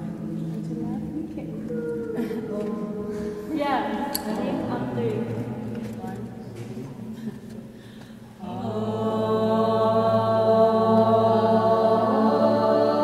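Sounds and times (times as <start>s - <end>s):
low mantra chant: 8.4s - 13.0s.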